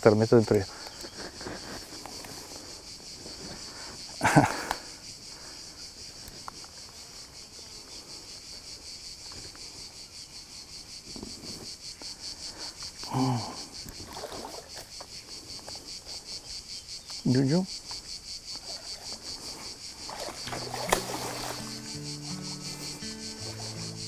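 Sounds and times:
crickets chirping: 0:00.0 - 0:24.0.

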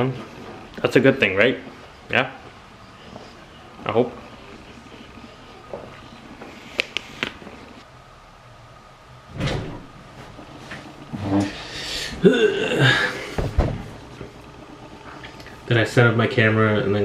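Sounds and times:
door thudding shut: 0:09.3 - 0:10.0, 0:13.4 - 0:13.9.

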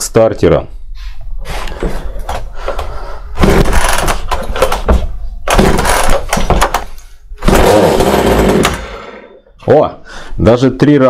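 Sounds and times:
chainsaw engine starting: 0:03.4 - 0:04.4, 0:05.5 - 0:06.4, 0:07.4 - 0:09.4
recoil starter cord pulls: 0:05.5 - 0:09.1.

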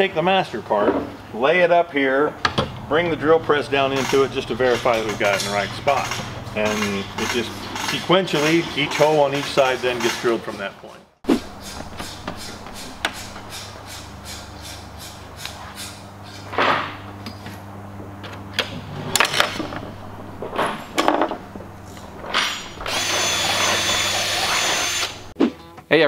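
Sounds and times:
steady low hum: 0:02.3 - 0:09.1, 0:11.2 - 0:25.4
hand tools clicking and clattering: 0:03.8 - 0:10.7, 0:11.5 - 0:16.5, 0:18.2 - 0:25.2
cordless drill whining: 0:22.4 - 0:25.3.

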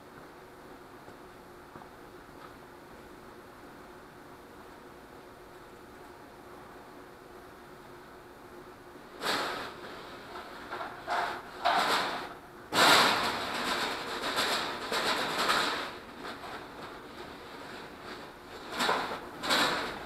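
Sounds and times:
wire scraping on concrete floor: 0:09.2 - 0:20.0.

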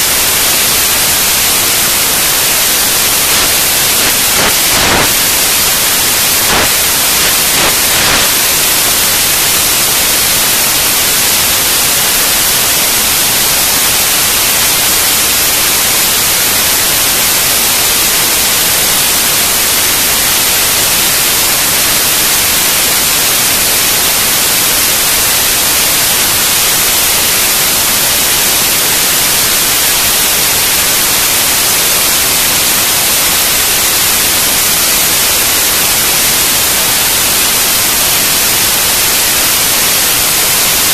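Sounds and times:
loud steady hiss: 0:00.0 - 0:40.9.

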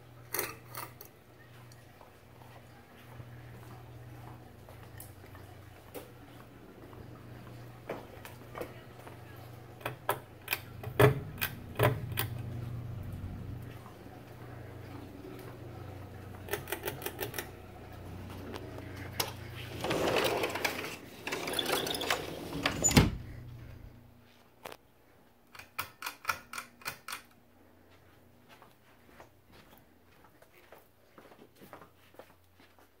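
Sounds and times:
ceiling fan humming: 0:00.0 - 0:25.7.

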